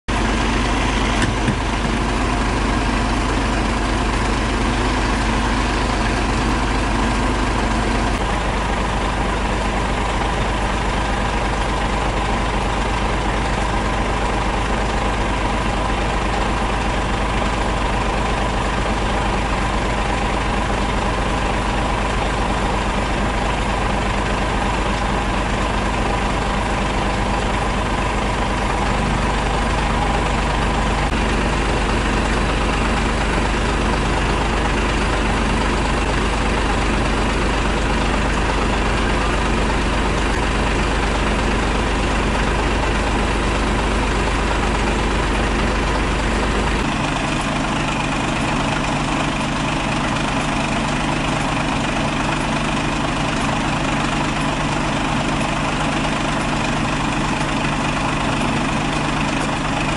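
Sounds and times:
diesel engine idling: 0.1s - 59.9s.

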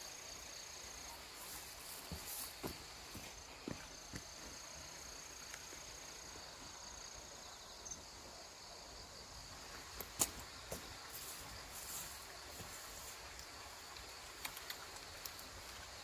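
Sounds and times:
insect chorus: 0.0s - 16.0s
light clicks: 13.3s - 15.5s.

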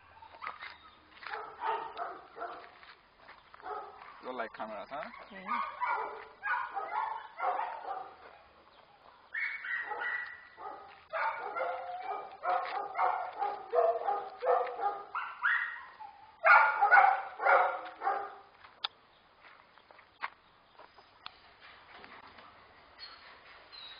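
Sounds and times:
dog barking and yelping: 0.0s - 2.7s, 3.6s - 4.3s, 5.0s - 8.2s, 9.0s - 18.5s.

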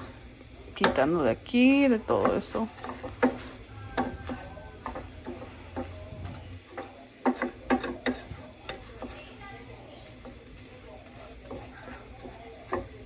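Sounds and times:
rice sizzling faintly: 0.0s - 13.0s
wooden spoon scraping a pot: 0.0s - 13.0s
spoon knocking against metal: 6.7s - 9.2s.

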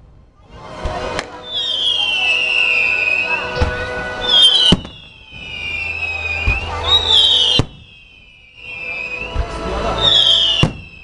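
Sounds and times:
firework bangs: 0.8s - 11.0s
firework whistles falling in pitch: 1.4s - 11.0s.

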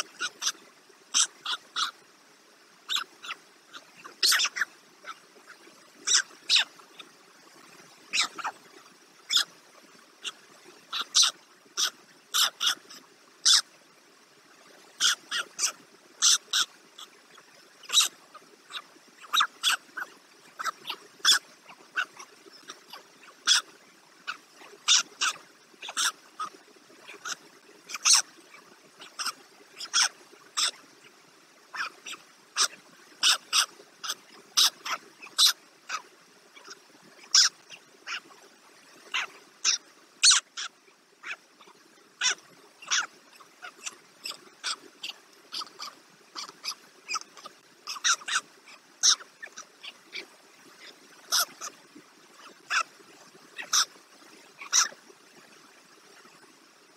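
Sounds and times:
faint steady hum: 0.0s - 56.9s
animal short sharp calls: 8.1s - 8.6s.

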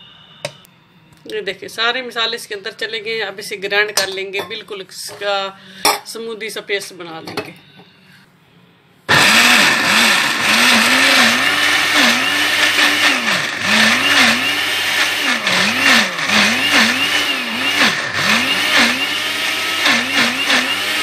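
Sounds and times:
electric blender grinding batter: 9.1s - 21.0s.

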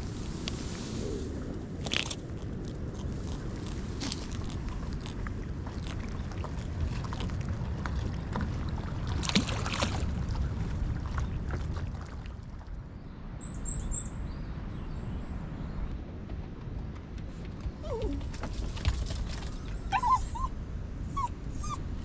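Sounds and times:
wind rumble on microphone: 0.0s - 22.0s
fish splashing into water: 8.0s - 12.5s.

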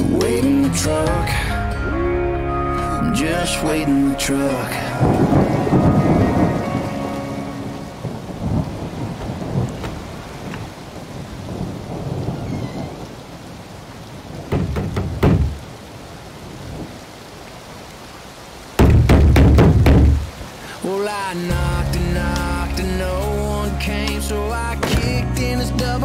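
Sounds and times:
steady rain: 0.0s - 26.0s
thunder rumbling: 1.3s - 17.0s
sharp knocks: 14.5s - 15.6s, 18.8s - 20.2s.

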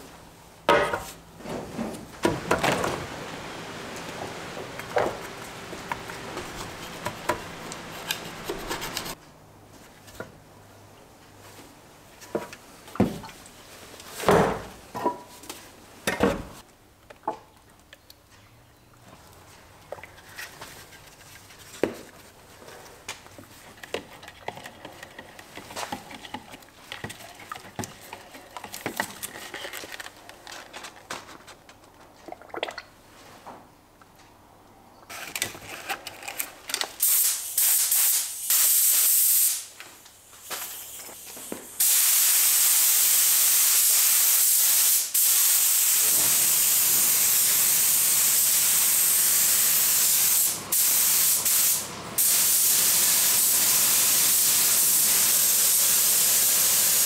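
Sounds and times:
spray gun hissing: 3.3s - 9.2s, 37.0s - 39.7s, 40.6s - 57.0s.

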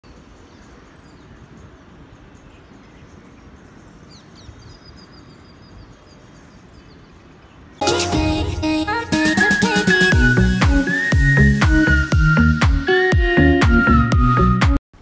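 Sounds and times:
low hum of city background: 0.0s - 7.8s
birds chirping: 0.0s - 8.2s.

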